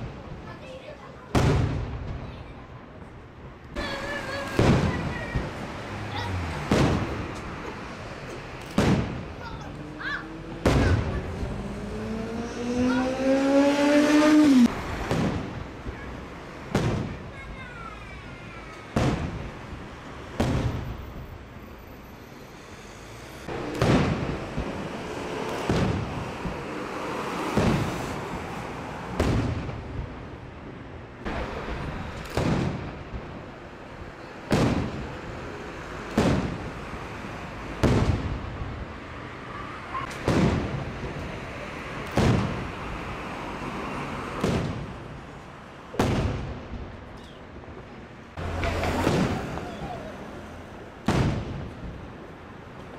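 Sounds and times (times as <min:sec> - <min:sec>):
firework shells booming: 0:04.3 - 0:05.6, 0:06.6 - 0:09.4, 0:10.6 - 0:11.2, 0:14.9 - 0:17.6, 0:18.9 - 0:21.0, 0:23.5 - 0:26.7, 0:27.5 - 0:28.2, 0:29.1 - 0:30.0, 0:31.3 - 0:33.4, 0:34.5 - 0:35.1, 0:36.1 - 0:36.7, 0:37.7 - 0:38.7, 0:40.1 - 0:41.2, 0:42.0 - 0:42.7, 0:44.4 - 0:45.1, 0:45.9 - 0:46.9, 0:48.5 - 0:50.1, 0:51.0 - 0:52.1.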